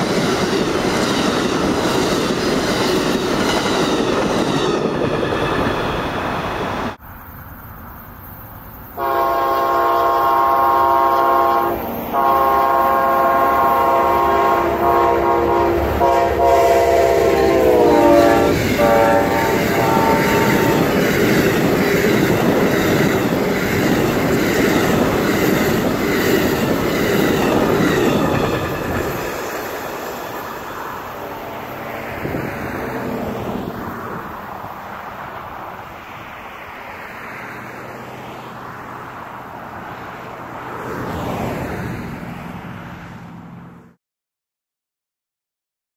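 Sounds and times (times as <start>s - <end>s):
train wheels clattering over rail joints: 0.0s - 5.8s, 18.5s - 31.2s
train air horn blasts: 9.0s - 20.9s.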